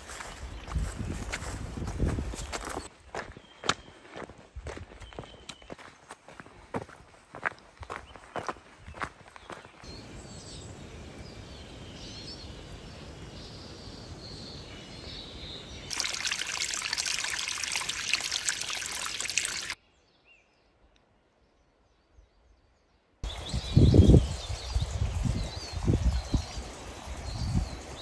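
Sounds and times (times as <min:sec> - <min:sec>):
small birds chirping: 0:00.0 - 0:28.0
stream and waterfalls rushing: 0:15.9 - 0:19.8.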